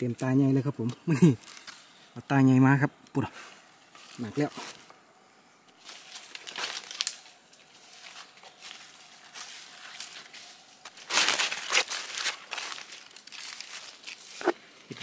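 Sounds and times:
dry leaves rustling and crunching: 0:03.9 - 0:04.9, 0:05.8 - 0:15.0.

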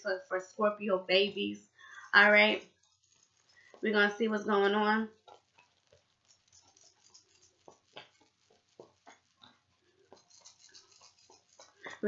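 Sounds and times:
soft clicks and rustles: 0:02.6 - 0:12.0.

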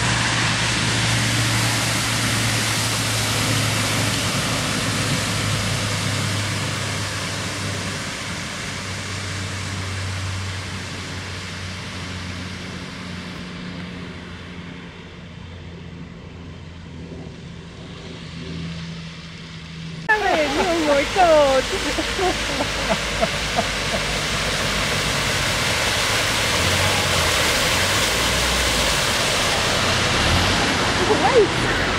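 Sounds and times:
low engine hum: 0:00.0 - 0:31.9
tyres throwing up water spray: 0:20.1 - 0:31.9.

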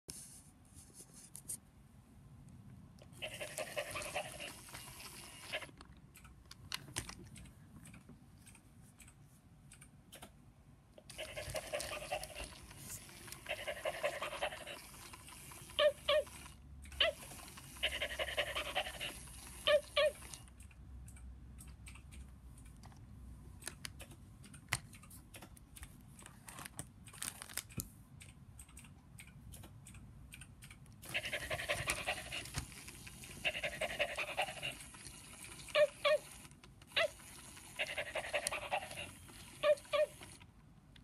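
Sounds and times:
toy dog electronic panting: 0:03.1 - 0:05.8, 0:11.0 - 0:20.6, 0:31.0 - 0:40.5
toy dog yaps: 0:03.1 - 0:05.8, 0:11.0 - 0:12.6, 0:13.3 - 0:14.8, 0:15.6 - 0:20.5, 0:31.0 - 0:32.6, 0:33.2 - 0:34.9, 0:35.6 - 0:40.4.

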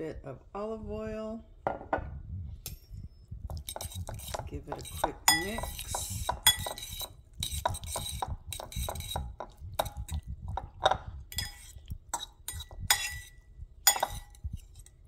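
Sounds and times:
metal fork clinking against bowl: 0:03.5 - 0:10.2, 0:10.8 - 0:15.0.

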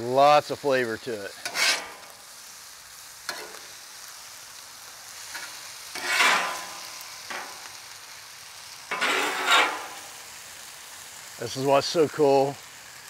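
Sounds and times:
fried rice sizzling on griddle: 0:00.0 - 0:13.0
metal spatulas scraping griddle: 0:01.4 - 0:02.2, 0:03.3 - 0:03.7, 0:05.3 - 0:07.8, 0:08.9 - 0:10.2.

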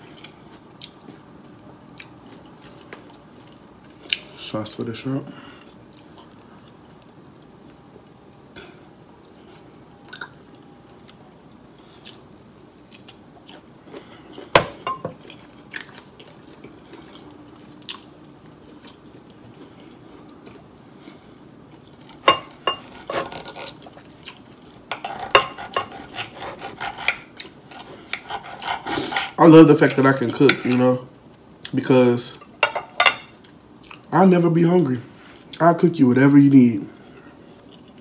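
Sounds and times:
chewing and lip smacks: 0:02.0 - 0:04.3, 0:10.1 - 0:13.7, 0:15.2 - 0:20.6
knife and fork scraping plate: 0:22.2 - 0:23.8, 0:24.9 - 0:29.4.

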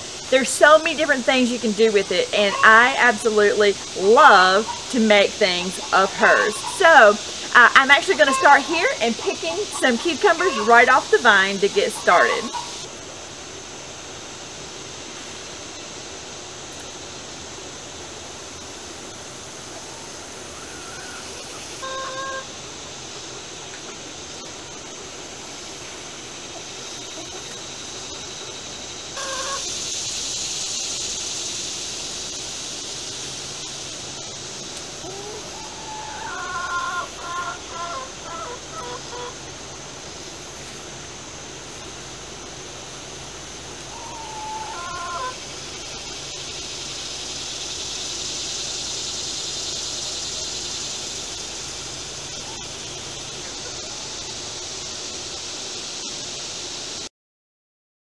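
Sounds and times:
steady high-pitched hiss: 0:00.0 - 0:57.1
chickens clucking: 0:01.4 - 0:12.9, 0:19.8 - 0:22.5, 0:26.5 - 0:27.7, 0:29.2 - 0:29.9, 0:35.0 - 0:39.5, 0:43.9 - 0:46.0, 0:52.3 - 0:54.4.

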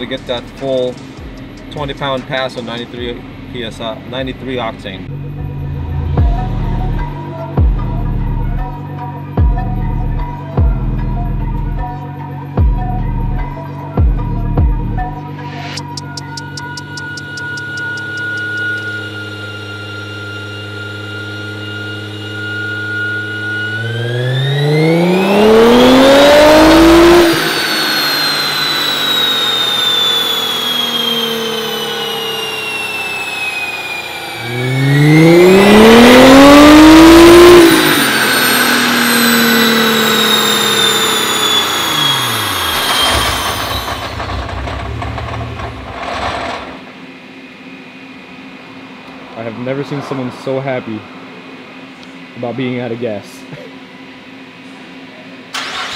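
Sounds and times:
car engine revving on dyno: 0:00.0 - 0:10.5, 0:16.6 - 0:52.4
dyno rollers whining: 0:14.2 - 0:55.9
low rumble of rollers: 0:43.1 - 0:46.9.

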